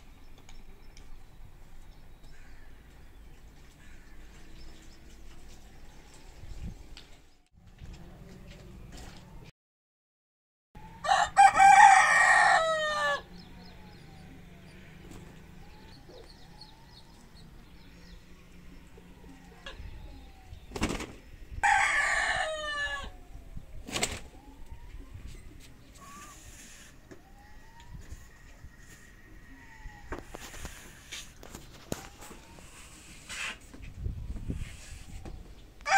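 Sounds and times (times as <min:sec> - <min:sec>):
rooster crowing: 0:10.8 - 0:13.4, 0:21.6 - 0:23.2.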